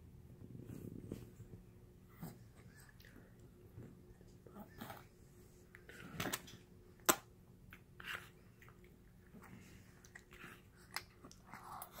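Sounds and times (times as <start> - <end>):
baby chewing wet mouth noises: 5.7 - 12.0.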